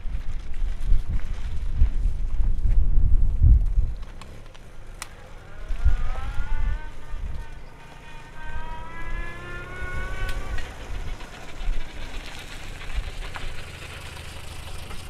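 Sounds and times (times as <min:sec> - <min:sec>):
wind rumble on microphone: 0:00.0 - 0:13.9
car engine accelerating: 0:03.6 - 0:15.0.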